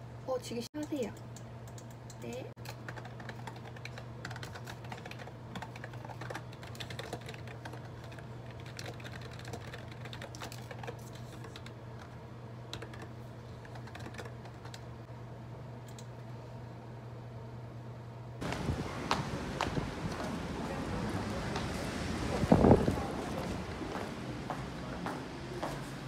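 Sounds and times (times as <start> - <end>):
steady low hum: 0.0 - 26.0
typing on computer keyboard: 1.7 - 14.9.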